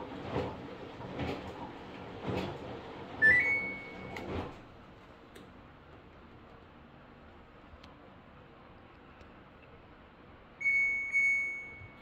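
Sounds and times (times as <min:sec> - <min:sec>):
washing machine beeping chime: 0:03.2 - 0:04.4, 0:10.6 - 0:12.0.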